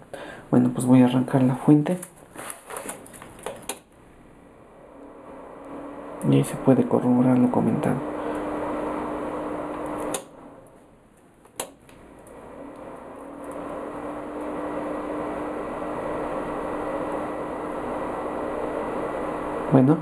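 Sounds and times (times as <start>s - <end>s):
cooling fan humming: 3.0s - 20.0s
switch click: 9.7s - 10.3s, 11.5s - 12.0s.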